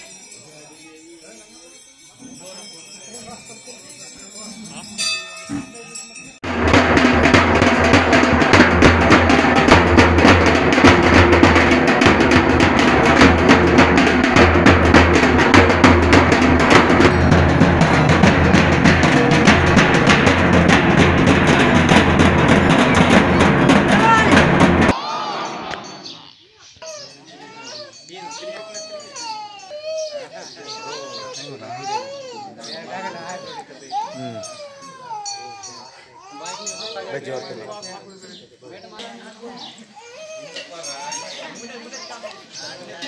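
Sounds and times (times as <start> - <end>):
bell ring: 0.0 - 6.5
dense drumming with bass drum: 6.4 - 25.0.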